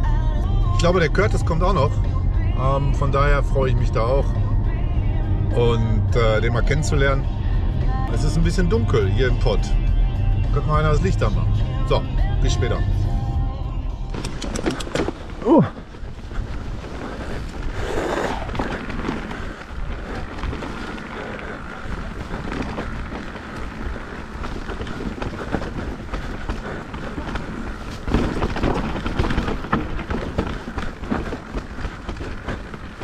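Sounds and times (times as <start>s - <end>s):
bike tyres on dirt: 0.0s - 33.0s
bike chain and frame rattling: 14.1s - 33.0s.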